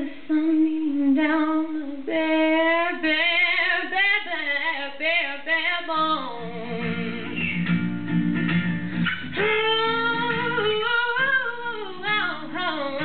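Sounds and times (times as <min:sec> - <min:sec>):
woman singing: 0:00.0 - 0:07.6, 0:09.1 - 0:13.0
acoustic guitar strumming: 0:06.2 - 0:13.0.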